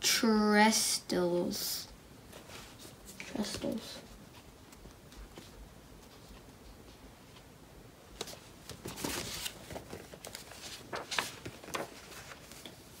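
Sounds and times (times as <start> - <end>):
paper pages rustling: 8.2 - 13.0.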